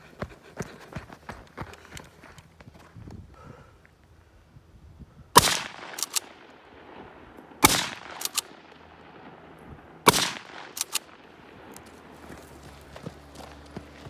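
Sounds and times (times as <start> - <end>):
rifle shots: 5.4 - 11.7
short clicks: 5.7 - 6.6, 7.6 - 8.6, 10.1 - 11.1.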